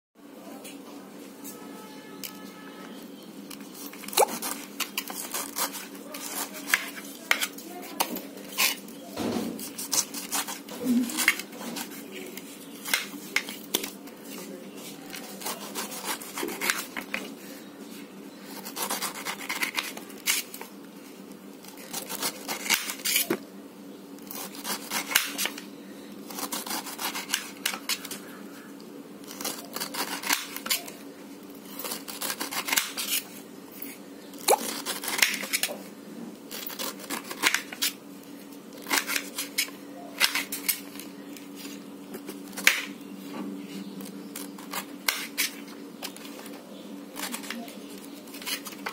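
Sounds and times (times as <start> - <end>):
knife cutting pineapple rind: 3.5 - 17.4, 18.4 - 20.7, 21.6 - 23.5, 24.2 - 25.6, 26.2 - 28.4, 29.2 - 35.9, 36.5 - 38.0, 38.7 - 43.0, 43.8 - 48.9.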